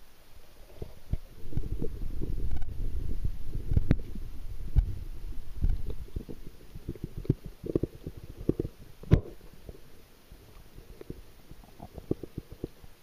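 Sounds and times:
muffled underwater thumps and knocks: 0.7 - 9.8.

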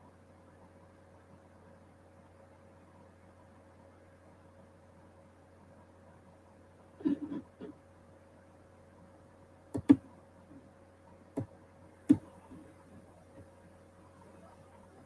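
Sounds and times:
faint steady hum: 0.0 - 15.0
computer mouse and key clicks: 9.7 - 10.2, 11.3 - 13.5.

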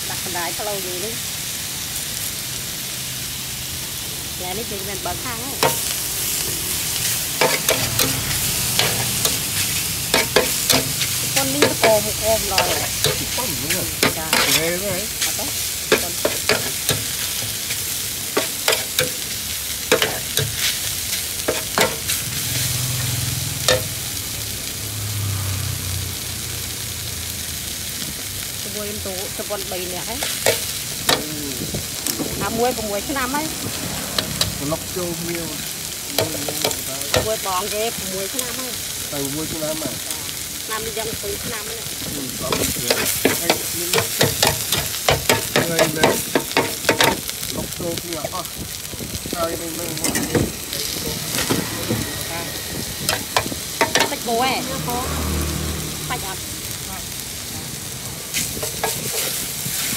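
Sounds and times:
noodles sizzling on a pan: 0.0 - 59.9
metal spatula scraping a pan: 5.6 - 24.0, 50.0 - 54.7, 58.3 - 59.9.

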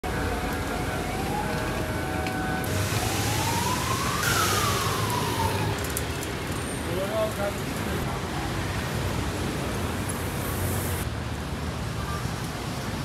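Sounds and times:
emergency siren wailing: 0.0 - 6.1
city street traffic: 0.0 - 13.0.

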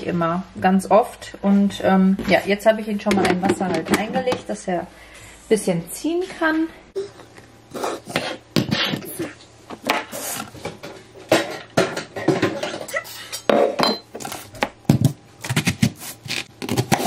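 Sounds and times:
kitchen items knocking and clinking: 3.1 - 4.5, 9.8 - 12.9.

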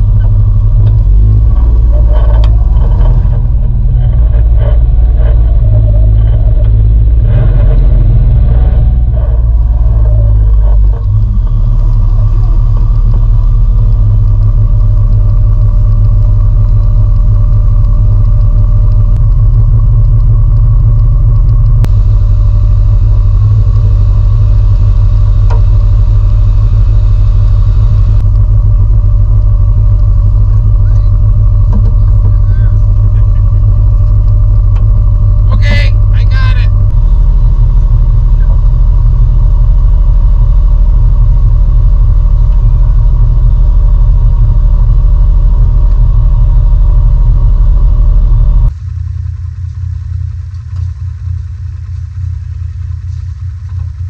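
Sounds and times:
engine idling low rumble: 0.0 - 54.0.

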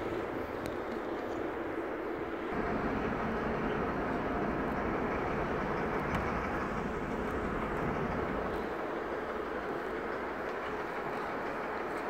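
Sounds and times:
train rumbling and hissing: 0.0 - 12.0.

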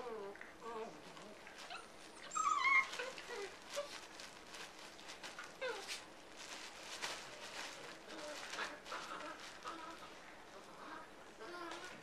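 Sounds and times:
dog whining: 0.0 - 3.9, 5.6 - 6.0, 8.1 - 12.0
dogs scuffling and pawing: 0.9 - 12.0.

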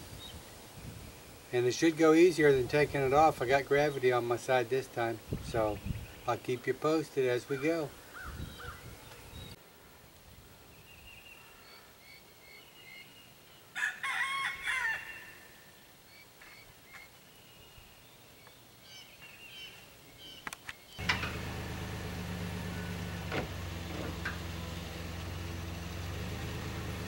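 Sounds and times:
small birds chirping: 0.1 - 9.6, 15.7 - 26.8
rooster crowing: 13.8 - 15.7
low motor hum: 21.0 - 27.0.

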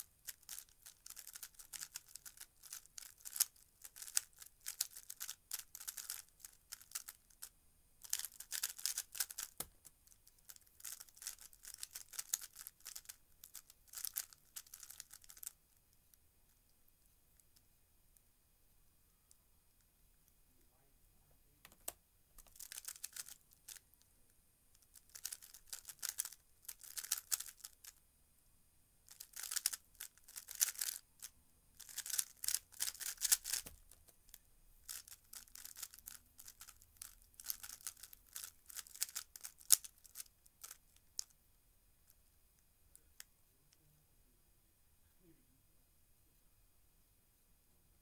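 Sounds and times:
puzzle cube clacking: 0.0 - 15.6, 21.6 - 23.8, 24.8 - 28.0, 29.1 - 41.3.

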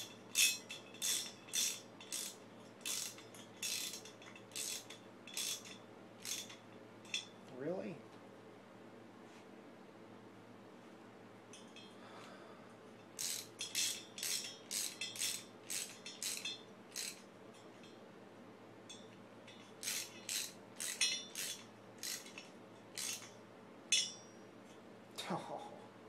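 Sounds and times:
ratchet wrench clicking: 0.0 - 7.3, 13.2 - 17.3, 18.9 - 24.2.

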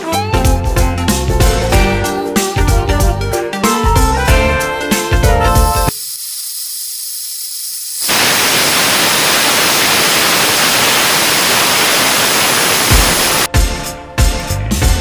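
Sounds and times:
pressure cooker steam hissing: 5.7 - 13.5.

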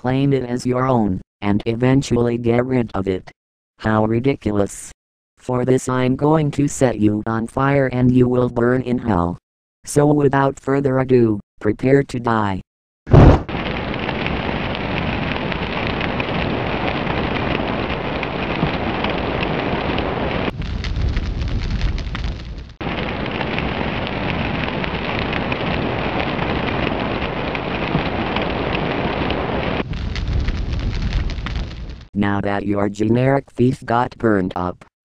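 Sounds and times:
flames crackling: 13.1 - 32.1.

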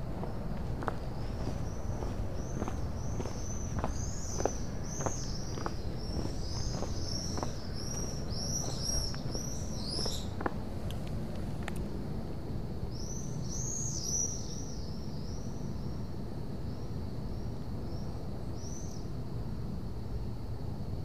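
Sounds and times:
low outdoor rumble: 0.0 - 13.6
songbird chirping: 0.1 - 10.6.

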